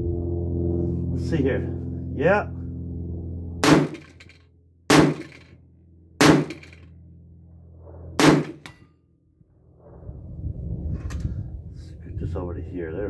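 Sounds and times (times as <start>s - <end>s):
rifle shots: 3.6s - 4.3s, 4.9s - 5.5s, 6.2s - 6.8s, 8.2s - 8.8s.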